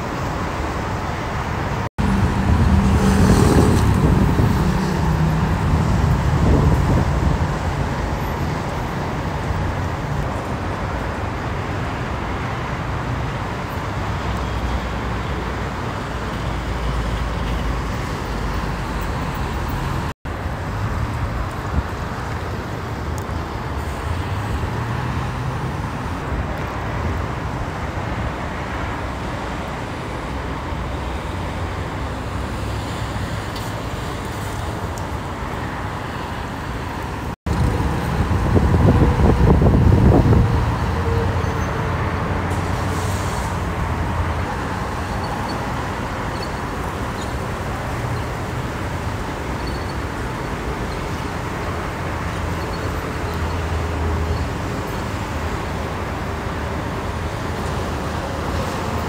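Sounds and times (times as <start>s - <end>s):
freeway traffic noise: 0.0s - 59.0s
heavy vehicle rumble: 0.0s - 59.0s.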